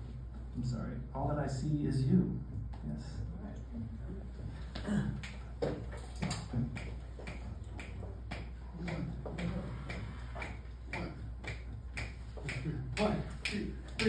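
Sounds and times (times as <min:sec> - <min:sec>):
steady sharp clicks: 0:05.2 - 0:14.0.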